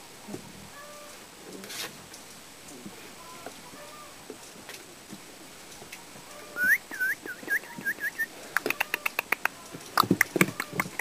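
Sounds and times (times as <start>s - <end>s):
high squeaky animal calls: 6.2s - 11.0s
sharp chirps and clicks: 6.6s - 11.0s.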